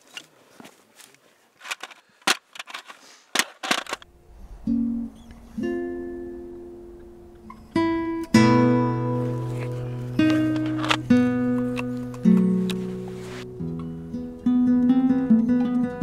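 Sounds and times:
plucked-string music: 4.2s - 16.0s.

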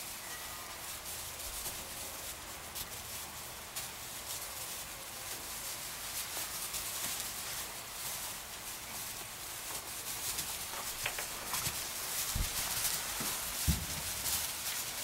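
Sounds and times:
light hoof patter: 0.0s - 15.0s
straw rustling: 0.0s - 15.0s
dull thumps: 10.8s - 14.5s.

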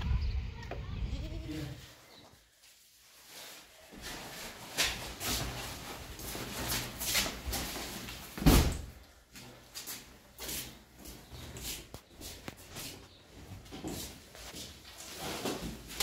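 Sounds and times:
plastic sacks rustling and scraping: 2.6s - 8.4s, 14.4s - 16.0s.

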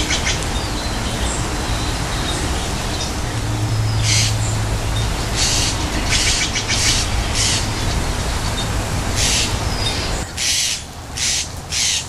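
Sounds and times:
jays harsh rasping calls: 0.0s - 12.0s.

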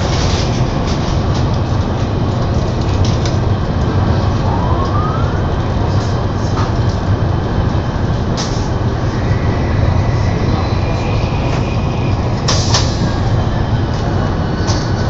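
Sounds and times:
train rumble inside cabin: 0.0s - 15.0s
faint rising whistle: 9.0s - 13.8s.

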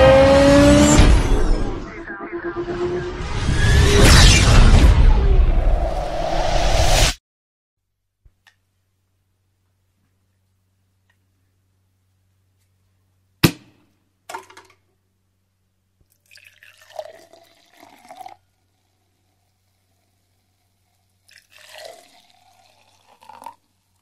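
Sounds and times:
fizzy wine pouring into glasses: 16.1s - 24.0s
wine fizzing: 16.1s - 24.0s.

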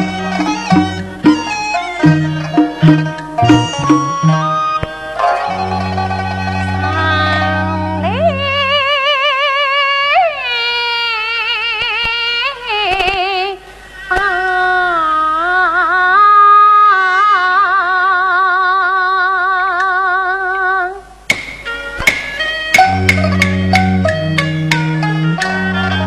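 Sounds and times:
sharp percussion strikes: 0.0s - 7.8s, 21.3s - 25.7s
opera accompaniment: 0.0s - 16.2s
woman singing opera with vibrato: 6.7s - 21.1s.

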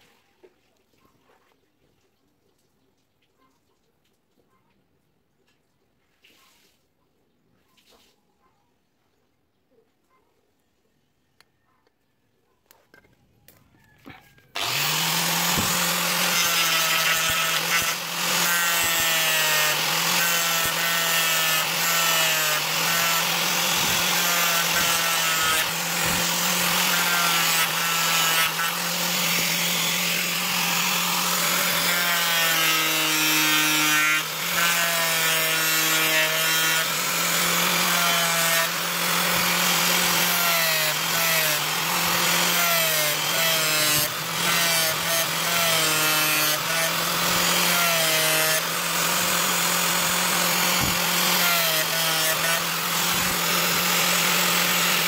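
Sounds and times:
angle grinder sanding wood: 14.6s - 55.0s.

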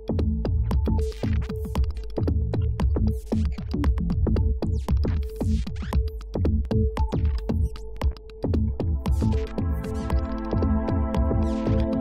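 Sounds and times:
kick drum beat: 0.0s - 12.0s
sustained synth chords: 9.0s - 12.0s.

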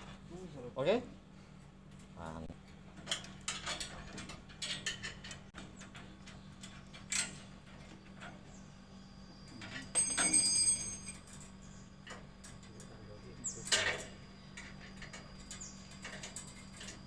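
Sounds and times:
steady low hum: 0.0s - 17.0s
metallic clink: 9.9s - 11.4s.

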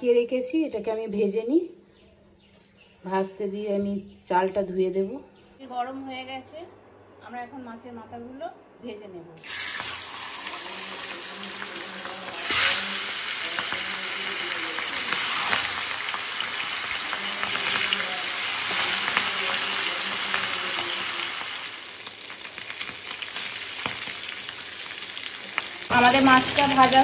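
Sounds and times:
fish frying in hot oil: 9.4s - 27.0s.

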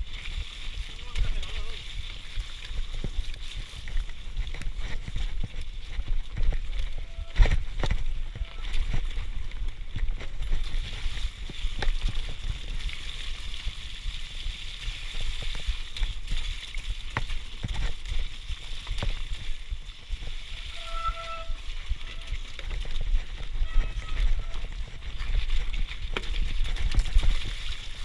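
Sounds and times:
mountain bike rattling and knocking: 0.0s - 14.0s, 14.9s - 28.0s.

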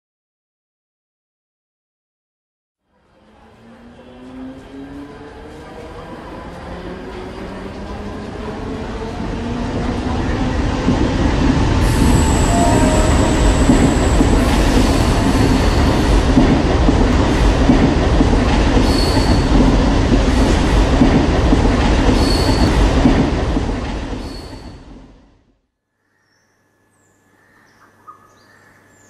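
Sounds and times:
train wheels rumbling on rails: 3.2s - 25.3s
thin high squeals: 11.8s - 16.1s, 22.2s - 22.8s.

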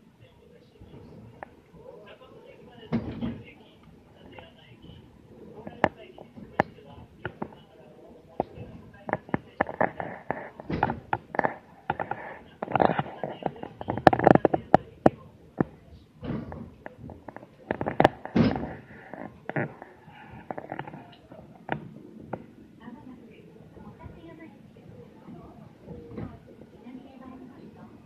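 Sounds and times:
sharp clicks and knocks: 8.4s - 19.8s.

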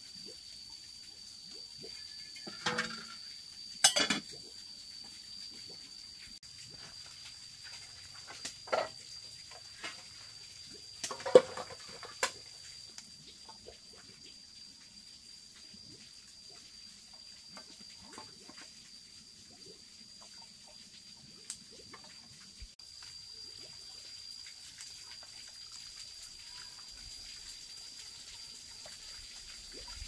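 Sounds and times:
dishes knocking and clinking: 2.5s - 3.2s, 3.8s - 4.3s.

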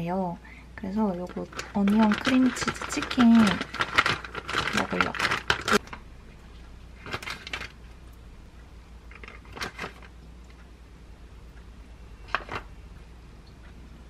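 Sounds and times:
faint low hum: 0.0s - 14.0s
utensil clicks and plastic rustles: 1.0s - 8.0s, 9.1s - 10.6s, 12.3s - 12.7s.

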